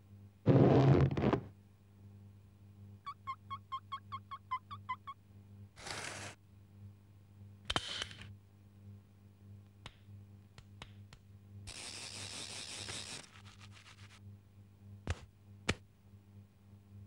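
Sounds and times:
steady low hum: 0:08.3 - 0:11.7.

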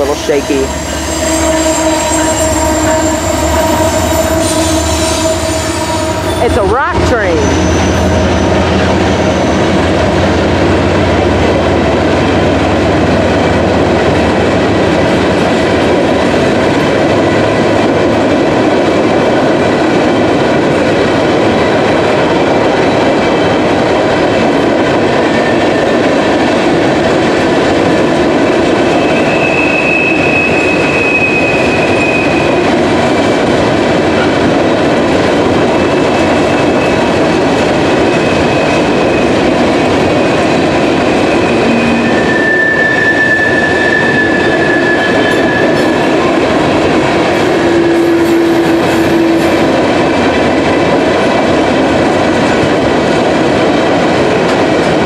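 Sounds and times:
freight train wheels rumbling: 0:00.0 - 0:55.0
high wheel squeal: 0:00.2 - 0:06.6, 0:07.2 - 0:09.9, 0:28.9 - 0:32.5, 0:41.3 - 0:46.0.

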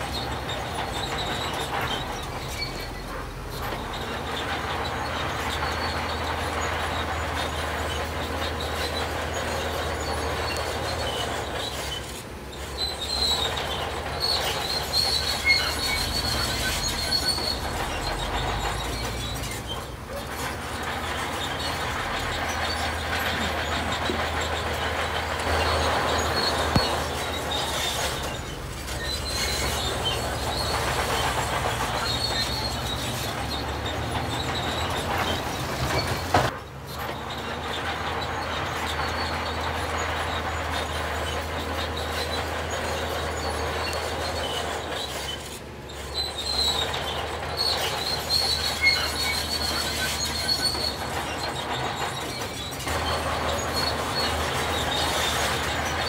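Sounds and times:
diesel machinery droning: 0:00.0 - 0:56.0
metallic squeals: 0:00.0 - 0:56.0.

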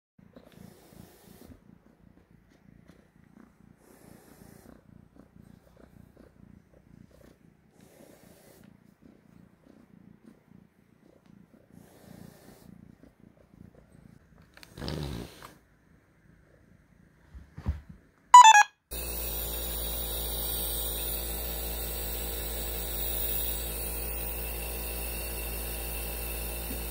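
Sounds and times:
kitten purring: 0:00.2 - 0:18.2.

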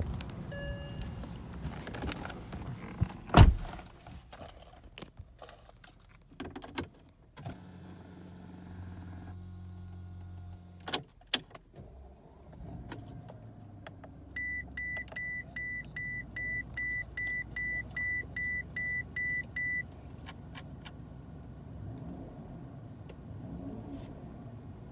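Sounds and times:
seatbelt reminder beeps: 0:00.5 - 0:01.2, 0:14.4 - 0:19.9.

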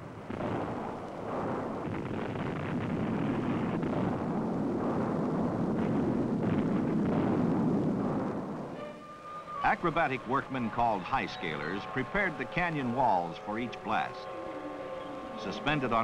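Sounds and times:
explosion rumble and falling rock: 0:00.3 - 0:08.8.

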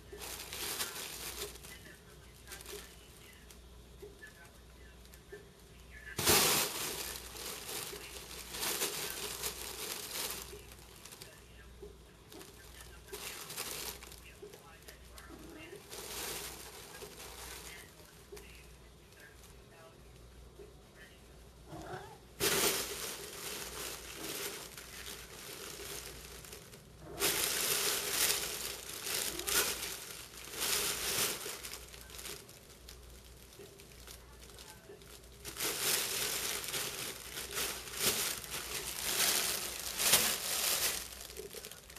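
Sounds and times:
crinkle tunnel crinkling: 0:00.0 - 0:20.2, 0:21.0 - 0:41.9
cats scrambling: 0:21.6 - 0:34.2, 0:35.0 - 0:41.8.

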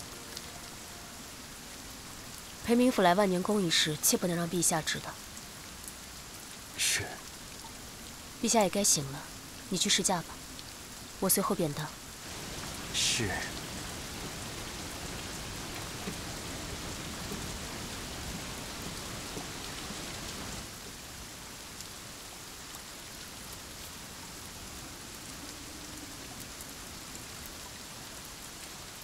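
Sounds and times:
heavy rain: 0:00.0 - 0:29.0.

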